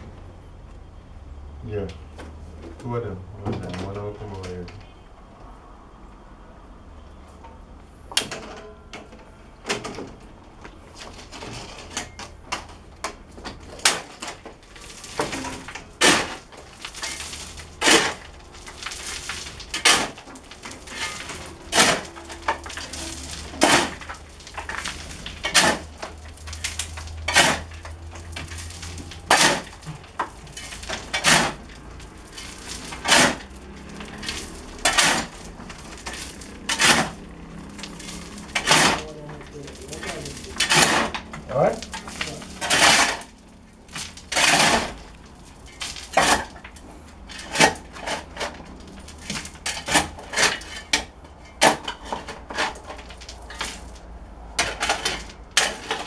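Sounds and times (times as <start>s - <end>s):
stones clinking: 13.4s - 56.0s
shovel striking stony soil: 15.2s - 20.2s, 20.8s - 43.3s, 43.9s - 45.0s.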